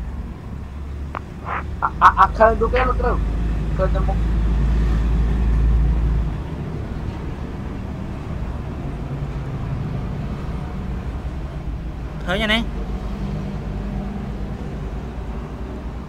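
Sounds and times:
faint hum: 0:00.0 - 0:04.2.

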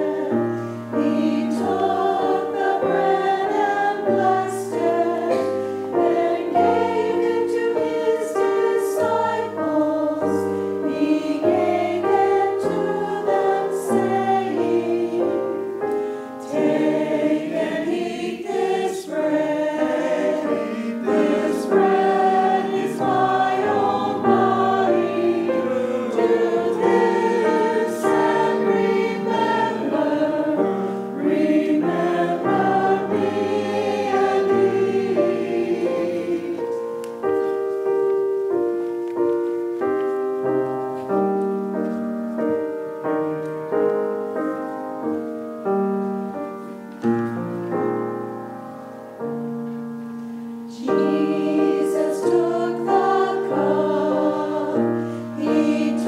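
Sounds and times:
choir singing: 0:00.0 - 0:37.5, 0:50.7 - 0:56.0
piano playing: 0:00.0 - 0:56.0.

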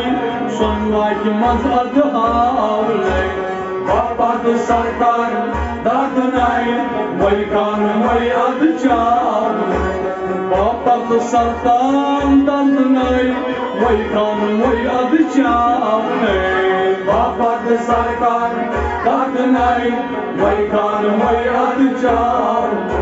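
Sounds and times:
bowed sarangi: 0:00.0 - 0:23.0
harmonium: 0:00.0 - 0:23.0
men singing: 0:00.0 - 0:23.0
plucked rabab: 0:00.0 - 0:23.0.

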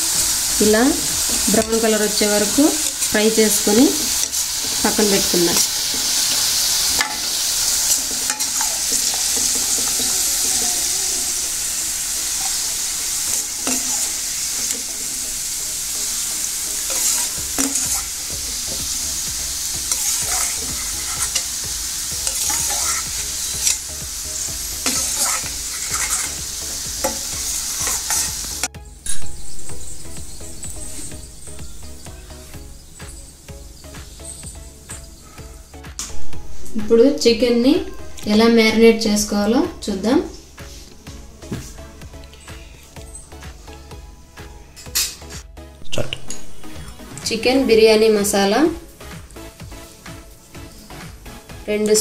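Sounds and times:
onions sizzling in hot oil: 0:00.0 - 0:41.3
spatula scraping pan: 0:02.4 - 0:15.2, 0:16.1 - 0:19.0, 0:19.6 - 0:28.5.

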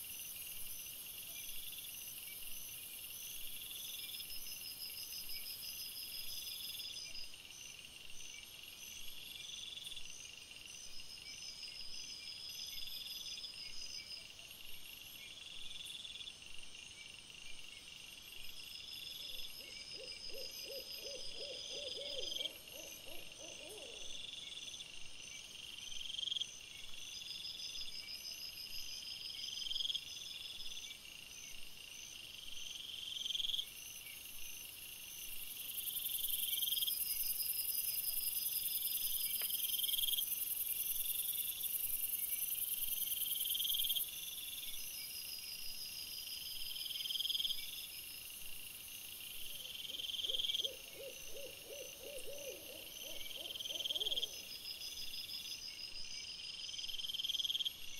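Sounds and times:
night insects chirping: 0:00.0 - 0:57.9.

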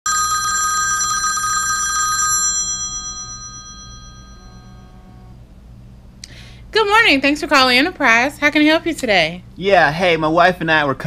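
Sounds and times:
telephone ringing: 0:00.1 - 0:05.4.

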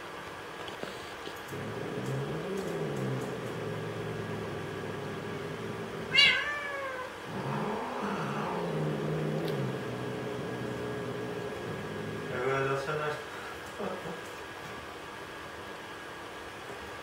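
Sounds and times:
cat meowing: 0:06.1 - 0:08.8
cat yowling: 0:06.1 - 0:09.6.

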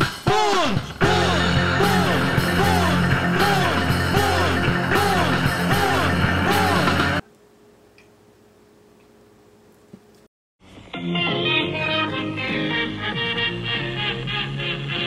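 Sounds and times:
swooping music notes: 0:00.0 - 0:07.2, 0:10.8 - 0:15.0
low bass: 0:01.0 - 0:07.2.

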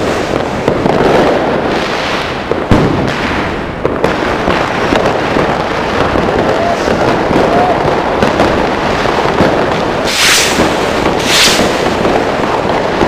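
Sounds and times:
fireworks crackling and banging: 0:00.0 - 0:13.0
loud hissing rushes: 0:09.9 - 0:12.4.

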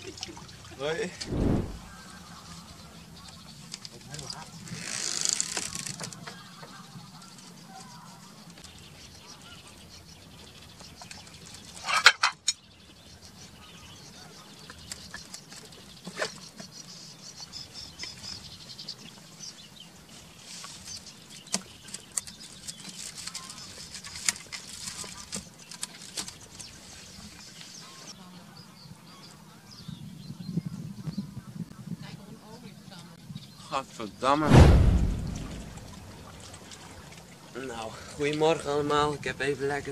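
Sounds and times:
cutlery and plates shifting: 0:11.8 - 0:12.6
low steady hum: 0:34.5 - 0:36.5.

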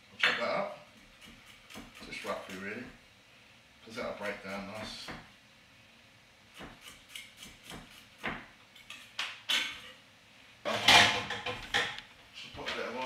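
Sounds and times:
knife chopping on wooden board: 0:01.2 - 0:02.4, 0:06.6 - 0:08.5.

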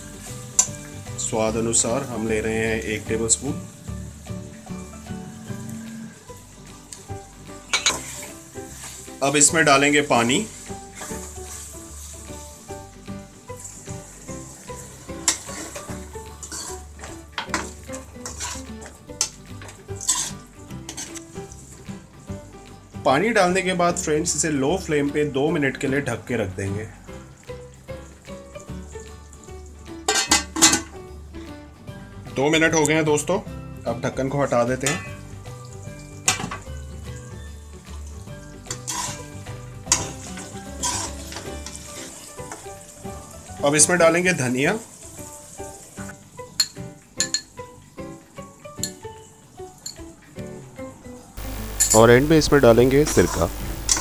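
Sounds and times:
sizzling in a hot pan: 0:00.0 - 0:23.6, 0:26.9 - 0:32.2, 0:34.8 - 0:50.2, 0:51.4 - 0:54.0
metal spatula scraping a pan: 0:07.7 - 0:09.2, 0:10.2 - 0:12.3, 0:13.5 - 0:18.9, 0:20.0 - 0:21.4, 0:38.7 - 0:42.6.

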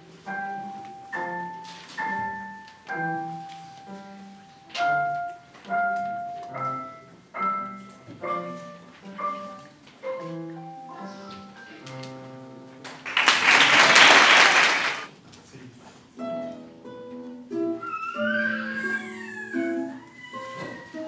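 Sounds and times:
digital piano duet: 0:00.0 - 0:13.1
audience applause: 0:12.9 - 0:15.1.

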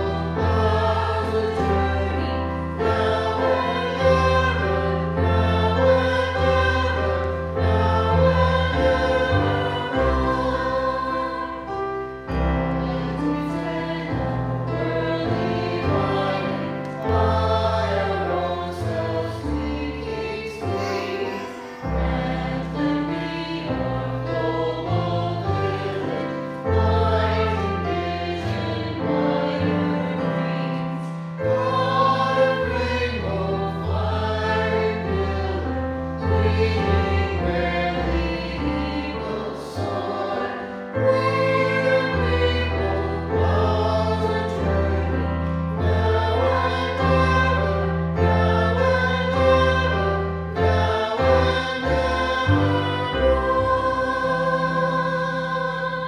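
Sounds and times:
mixed choir singing: 0:00.0 - 0:56.0.

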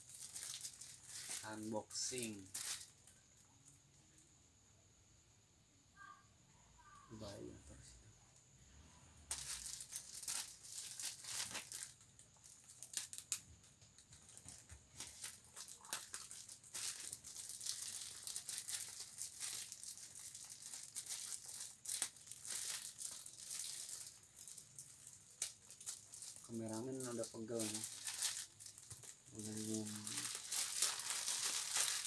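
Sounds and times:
plastic bag crinkling: 0:00.0 - 0:03.5, 0:09.3 - 0:32.0.

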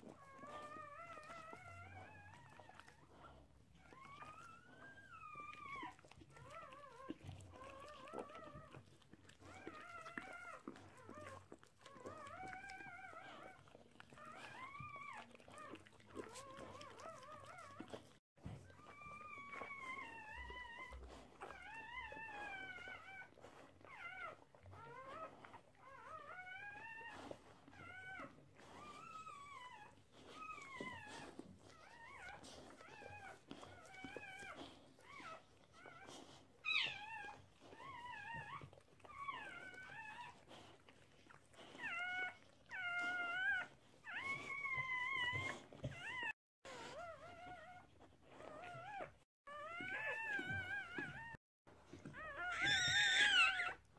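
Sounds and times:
newborn puppies squeaking: 0:18.6 - 0:53.9.

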